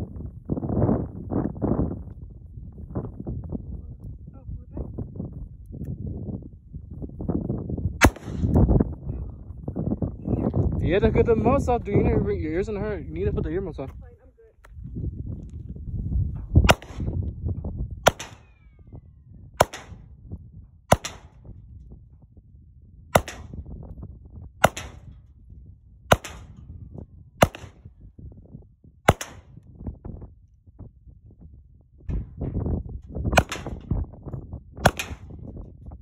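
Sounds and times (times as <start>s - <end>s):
handgun shots: 8.0s - 8.6s, 16.7s - 17.1s, 18.1s - 18.6s, 19.6s - 20.0s, 20.9s - 21.3s, 23.2s - 23.5s, 24.6s - 25.0s, 26.1s - 26.5s, 27.4s - 27.8s, 29.1s - 29.5s, 33.4s - 33.8s, 34.8s - 35.3s.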